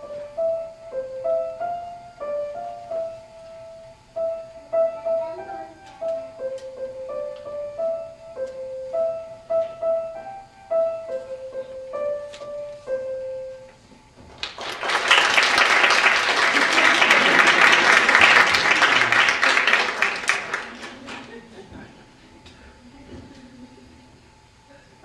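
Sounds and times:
grand piano melody: 0.0 - 13.9
audience applauding: 14.4 - 21.6.

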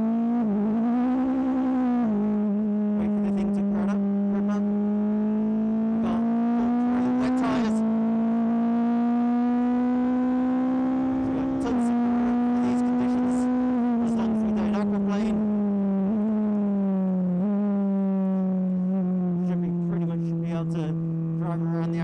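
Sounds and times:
car engine accelerating hard: 0.0 - 22.0
exhaust crackles: 0.0 - 22.0.

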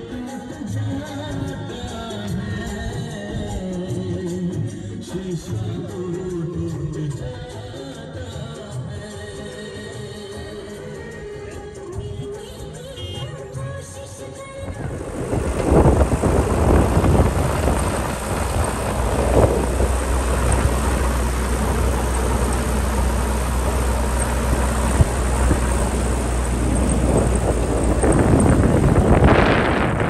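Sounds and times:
wind noise on microphone: 14.4 - 30.0
vehicle engine and tyre drone: 14.5 - 30.0.

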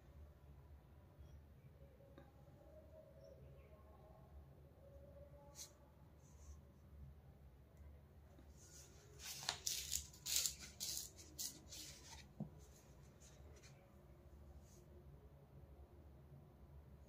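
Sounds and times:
low room hum: 0.0 - 17.0
soft hissy rustling: 8.4 - 14.9.

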